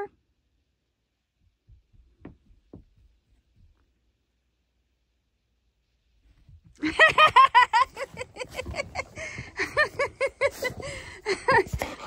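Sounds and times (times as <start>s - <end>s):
person laughing hard: 6.8s - 12.0s.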